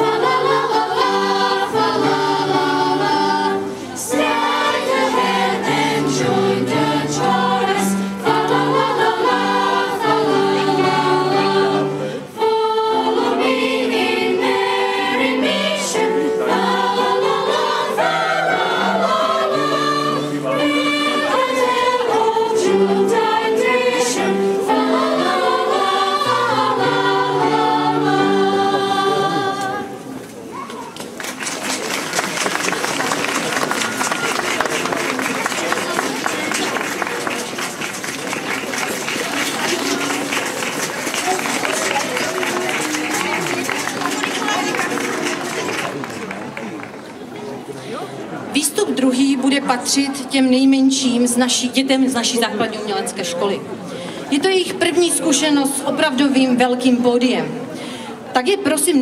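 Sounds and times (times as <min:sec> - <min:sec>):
choir singing: 0:00.0 - 0:30.2.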